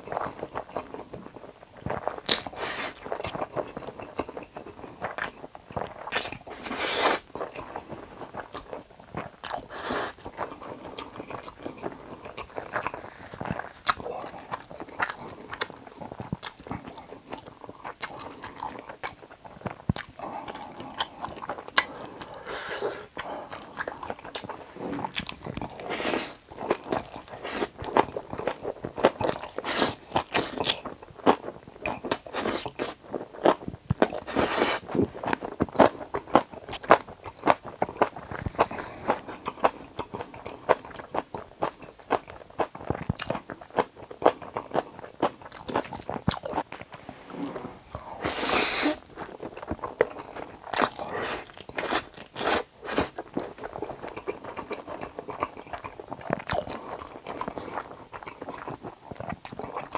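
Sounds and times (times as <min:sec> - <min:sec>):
wet chewing and crunching: 0:00.0 - 0:59.9
noodles slurped: 0:19.6 - 0:30.8, 0:45.6 - 0:59.9.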